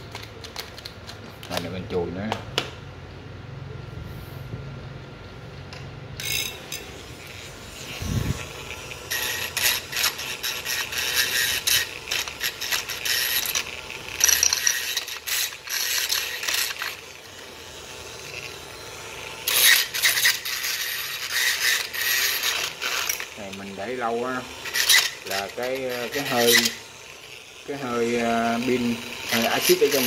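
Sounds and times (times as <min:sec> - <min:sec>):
metal tool scraping metal terminals: 0:06.2 - 0:30.0.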